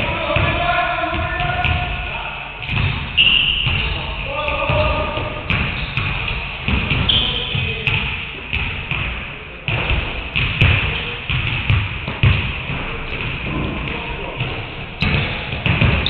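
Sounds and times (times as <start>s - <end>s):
basketballs bouncing on wooden floor: 0.0s - 16.0s.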